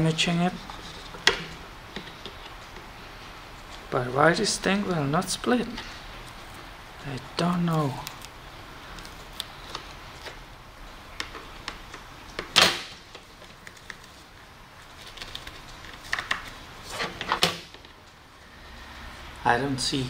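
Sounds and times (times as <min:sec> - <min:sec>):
plastic cracking and tearing: 0:07.4 - 0:10.4, 0:11.1 - 0:18.0.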